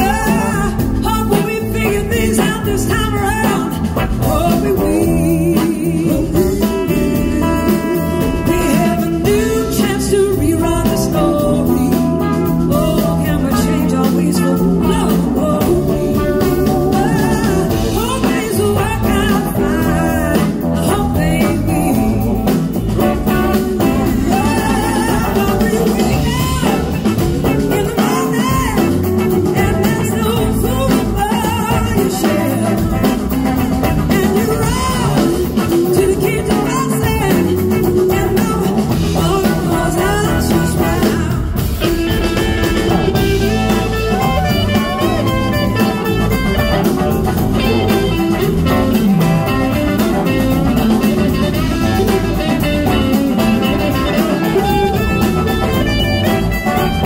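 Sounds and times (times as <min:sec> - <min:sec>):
blues-rock band playing: 0:00.0 - 0:57.0
woman singing: 0:00.0 - 0:57.0.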